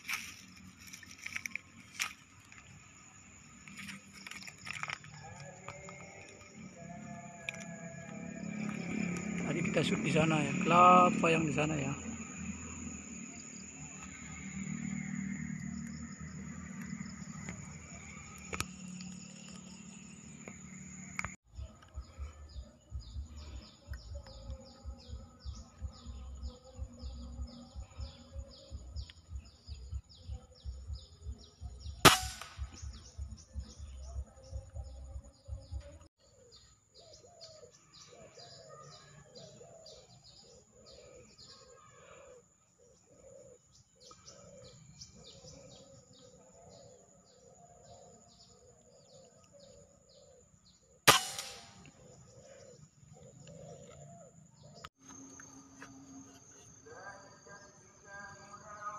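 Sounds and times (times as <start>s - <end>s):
high insect drone: 0.0s - 58.9s
bird calls: 20.3s - 56.8s
air rifle shots: 32.0s - 32.8s, 51.1s - 51.9s.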